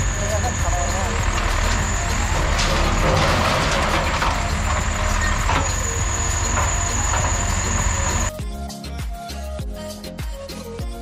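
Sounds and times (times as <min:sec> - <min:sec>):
vehicle engine and wind rumble: 0:00.0 - 0:08.3.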